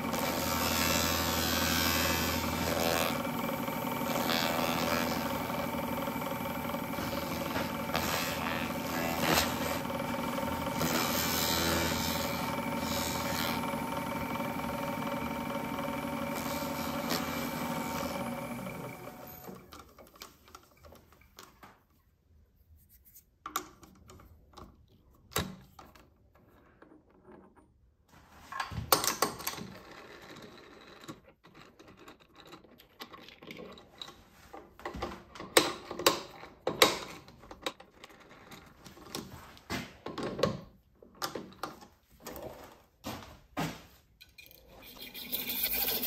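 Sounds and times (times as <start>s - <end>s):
lathe motor winding down: 0.0s - 19.7s, 44.8s - 46.0s.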